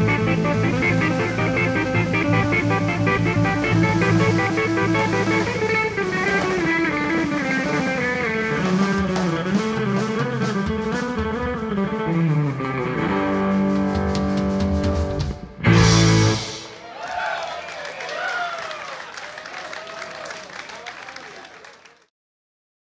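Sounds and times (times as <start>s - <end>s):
electric guitar lead line: 0.0s - 16.8s
bass guitar: 0.0s - 16.9s
drums: 0.0s - 17.3s
cymbals: 15.6s - 16.9s.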